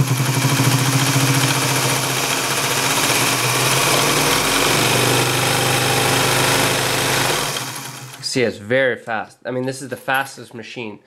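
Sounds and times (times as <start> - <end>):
sewing machine motor hum: 0.0 - 8.2
rapid stitching clatter: 0.2 - 8.2.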